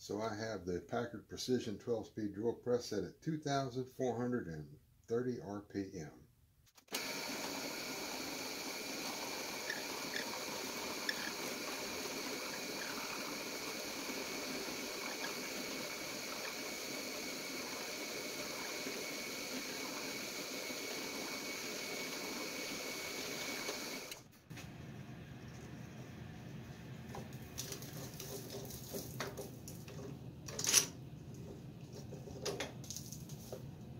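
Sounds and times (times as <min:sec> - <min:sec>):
drill bit rasping into wood: 0:06.9 - 0:24.2
drill press whining: 0:06.9 - 0:24.3.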